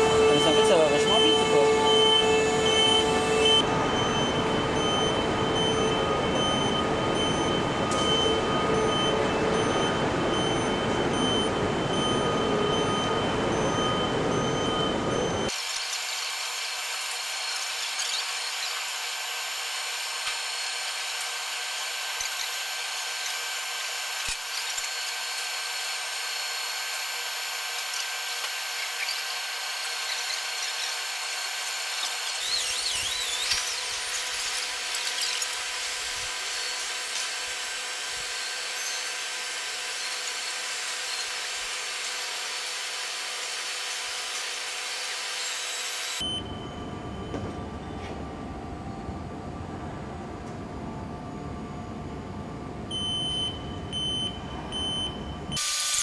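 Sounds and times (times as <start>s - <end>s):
machinery and power-tool noise: 0.0s - 14.4s, 15.2s - 46.3s, 55.5s - 56.0s
steady hum: 0.0s - 15.5s.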